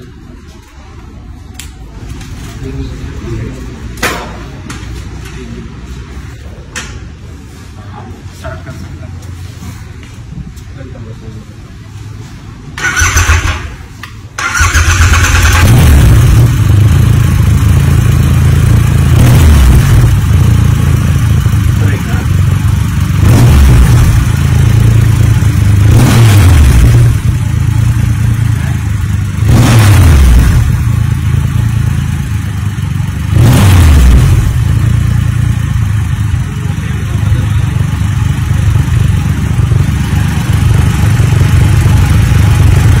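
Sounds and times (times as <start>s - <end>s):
motorcycle engine revving and idling: 12.1s - 43.0s.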